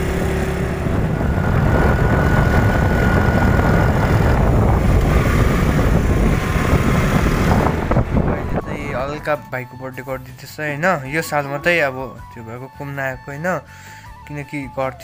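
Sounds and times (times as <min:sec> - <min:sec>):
motor scooter engine running: 0:00.0 - 0:09.3
wind on microphone: 0:00.3 - 0:09.3.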